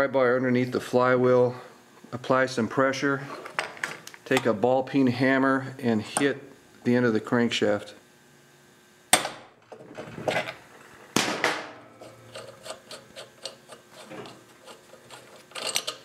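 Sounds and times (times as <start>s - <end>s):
metallic clicks and handling: 15.5s - 16.0s.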